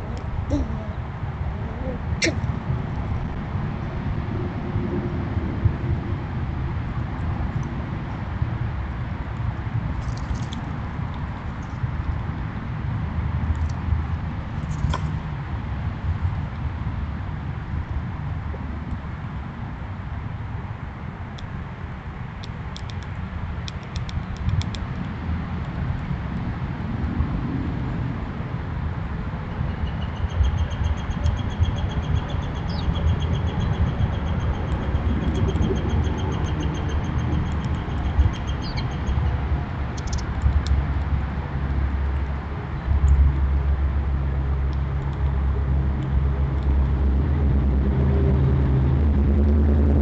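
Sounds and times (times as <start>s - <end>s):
bird trilling: 0.0s - 1.0s, 30.6s - 39.2s
low engine rumble: 31.3s - 50.0s.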